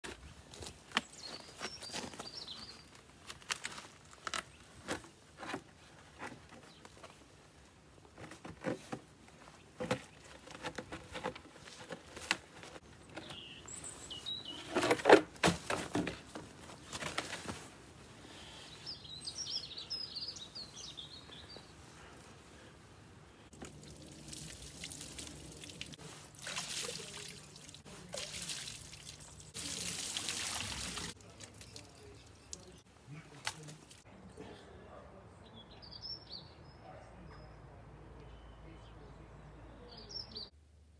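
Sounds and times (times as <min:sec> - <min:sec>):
birds calling: 0:12.7 - 0:15.2, 0:18.2 - 0:22.7
water pouring and splashing: 0:23.5 - 0:32.8.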